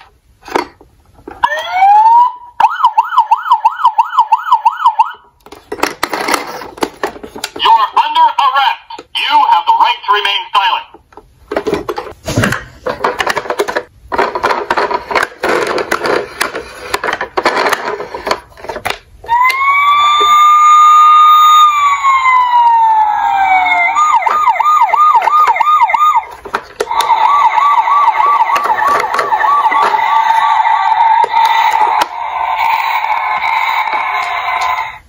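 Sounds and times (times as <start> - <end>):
toy police siren wailing: 1.4 - 5.3, 19.3 - 35.0
plastic toy cars clattering: 5.4 - 9.1, 11.1 - 19.1, 24.0 - 32.2.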